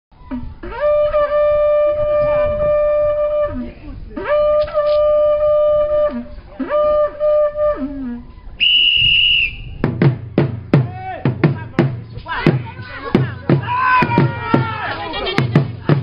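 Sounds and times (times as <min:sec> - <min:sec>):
wind instrument long notes: 0:00.2 - 0:09.8.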